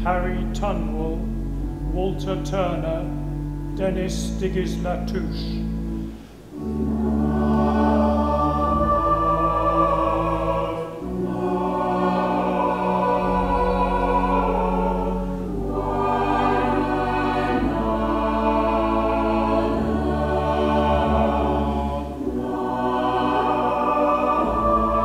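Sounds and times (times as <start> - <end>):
organ accompaniment: 0.0 - 25.0
girls' choir singing: 6.4 - 25.0.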